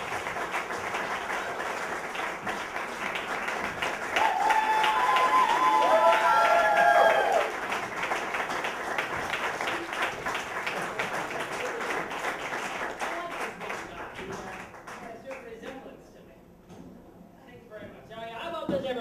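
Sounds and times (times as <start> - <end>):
audience applauding: 0.0 - 15.5
voices cheering: 4.2 - 7.6.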